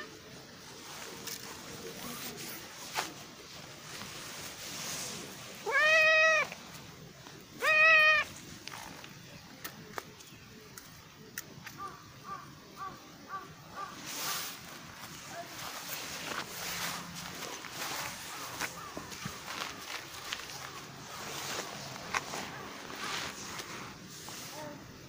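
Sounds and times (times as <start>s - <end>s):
cat meowing: 5.6s - 6.5s, 7.6s - 8.3s.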